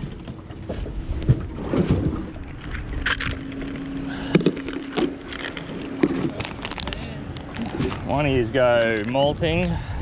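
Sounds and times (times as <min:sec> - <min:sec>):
steady low hum: 0:00.0 - 0:08.8.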